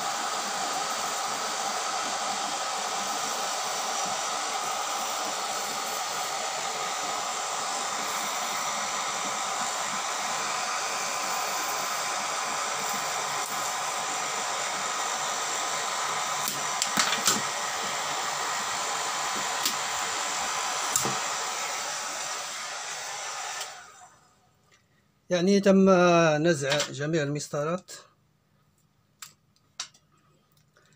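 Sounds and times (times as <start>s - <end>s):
hair dryer blowing: 0.0s - 24.5s.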